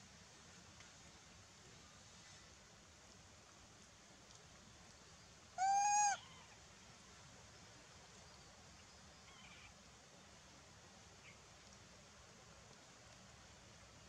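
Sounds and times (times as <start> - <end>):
faint background hiss: 0.0 - 14.0
monkey high-pitched call: 5.6 - 6.2.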